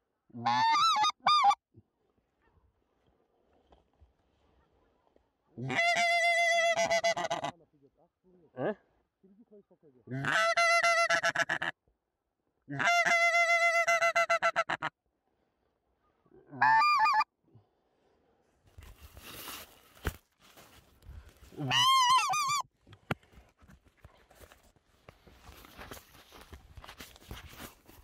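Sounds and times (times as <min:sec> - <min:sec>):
goose call honking: 0:00.4 - 0:01.6, 0:05.6 - 0:07.6, 0:10.1 - 0:11.7, 0:16.5 - 0:17.3, 0:21.6 - 0:22.6
rustling of dry straw: 0:18.6 - 0:21.8.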